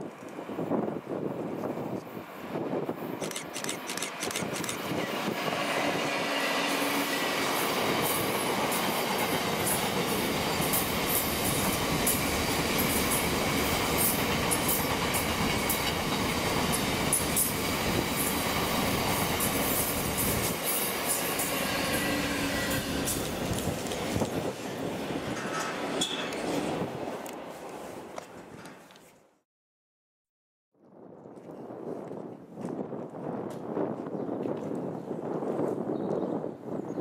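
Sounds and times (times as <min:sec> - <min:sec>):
freight train rumbling past: 0:03.8 - 0:28.1.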